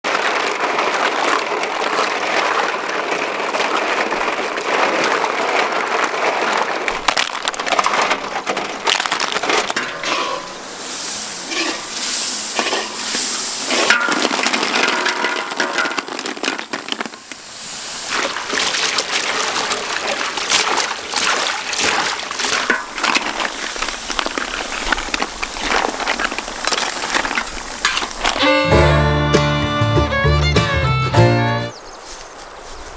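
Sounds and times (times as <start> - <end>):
water splashing: 0.0 - 28.5
sizzling in hot oil: 9.8 - 16.0.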